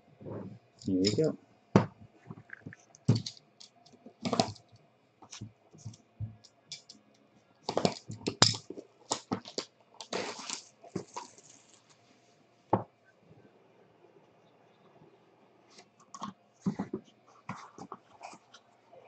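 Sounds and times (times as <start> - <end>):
shrink wrap crinkling and tearing: 9.1 - 12.0.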